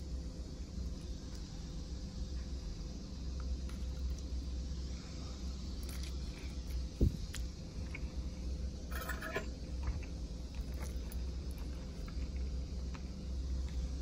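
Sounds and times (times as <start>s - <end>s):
fork scraping plastic plate: 8.9s - 9.5s.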